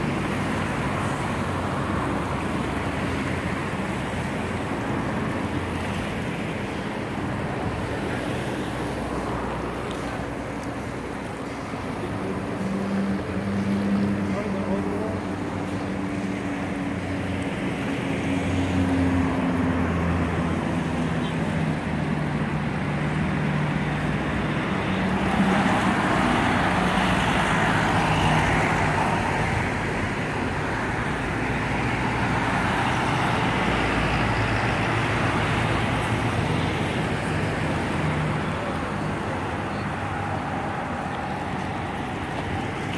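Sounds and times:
road traffic noise: 0.0 - 42.9.

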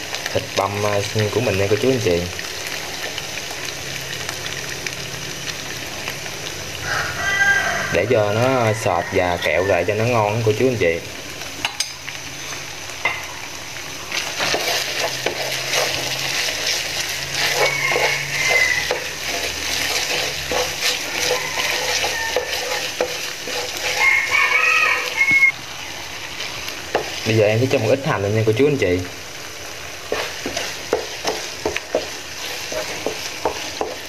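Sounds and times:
meat sizzling in a frying pan: 0.0 - 34.0
wooden spatula scraping pan: 14.2 - 25.4, 30.0 - 34.0.

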